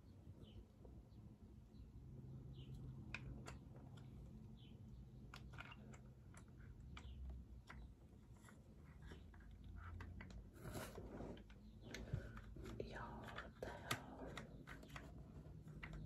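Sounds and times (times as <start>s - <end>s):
faint low hum: 0.0s - 16.0s
small plastic clicks and taps: 2.7s - 10.5s, 11.4s - 16.0s.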